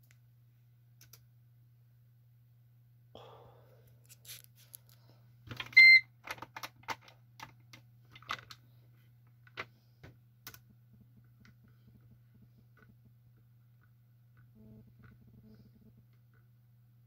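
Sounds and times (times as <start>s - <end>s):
low steady hum: 0.0s - 17.0s
short electronic beep: 5.8s - 6.0s.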